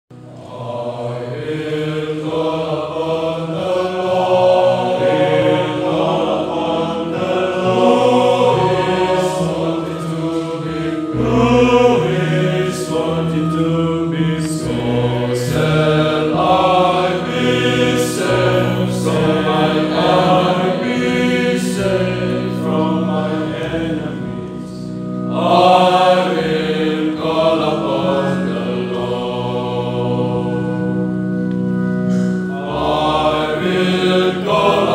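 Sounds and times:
male choir singing: 0:00.2 - 0:34.9.

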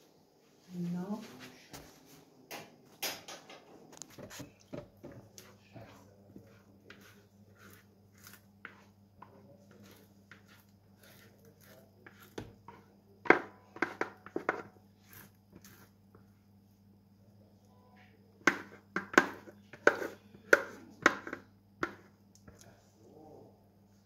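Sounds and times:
dough scraping in a bowl: 0:04.2 - 0:16.0, 0:18.5 - 0:22.2.

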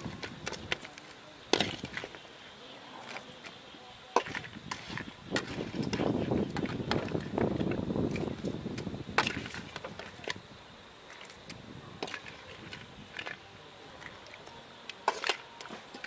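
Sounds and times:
metal skimmer scraping a wok: 0:04.2 - 0:06.7.

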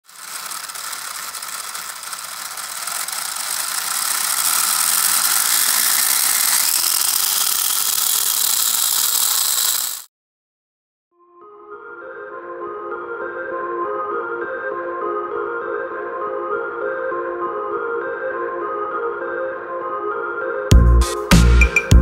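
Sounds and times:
small motors buzzing whir: 0:00.0 - 0:10.1.

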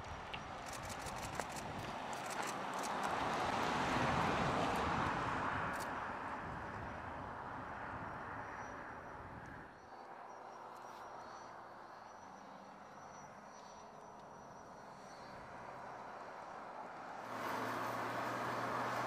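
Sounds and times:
vehicle passing with road noise: 0:00.4 - 0:10.6, 0:14.8 - 0:19.0
distant vehicle hum: 0:14.8 - 0:19.0.

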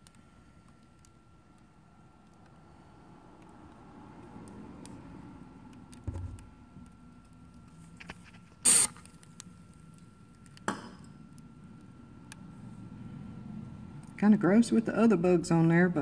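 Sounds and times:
aerosol cooking spray hissing: 0:08.6 - 0:08.9.

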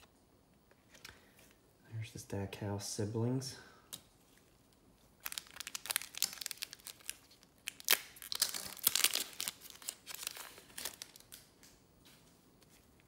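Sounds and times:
foil wrapper crinkling and tearing: 0:05.1 - 0:11.5.

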